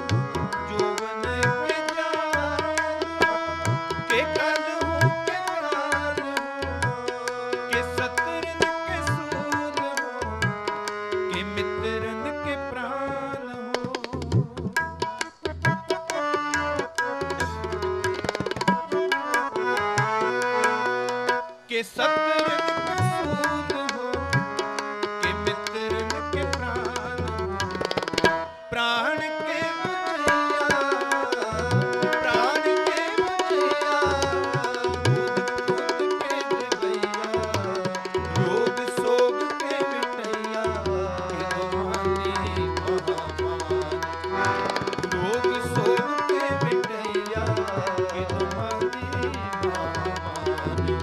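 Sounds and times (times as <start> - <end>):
sustained harmonium notes: 0.0 - 51.0
quick tabla strokes: 13.8 - 20.6, 27.2 - 28.5, 43.8 - 46.0, 49.7 - 51.0.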